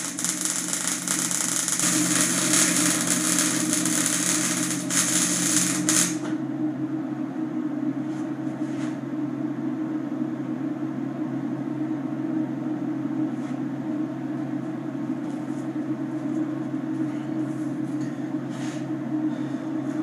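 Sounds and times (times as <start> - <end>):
welding arc hissing: 0.0 - 6.3
welding machine humming: 0.0 - 6.4.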